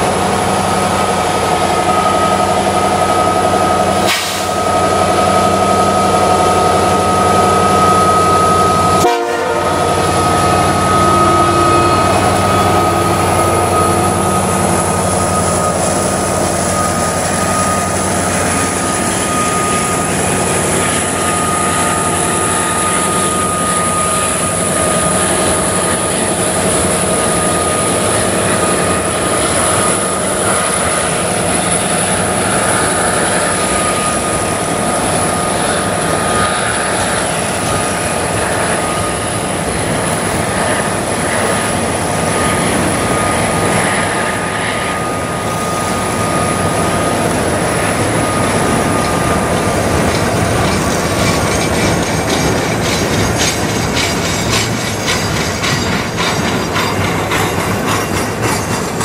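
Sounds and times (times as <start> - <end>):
train cars rolling past: 0.0 - 59.0
locomotive air horn: 7.1 - 13.8.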